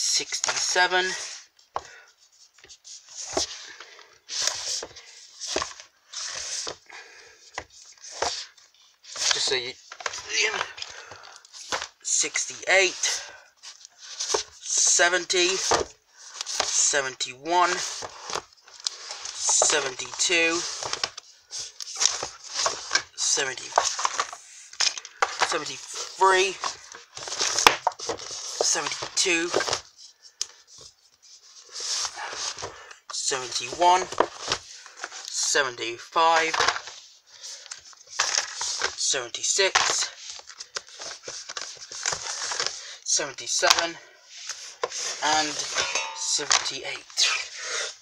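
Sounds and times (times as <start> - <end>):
books sliding and shuffling: 2.3 - 6.9, 7.5 - 16.9, 17.6 - 30.0, 30.6 - 32.8, 33.4 - 35.3, 36.4 - 39.0, 39.6 - 42.8, 43.6 - 48.0.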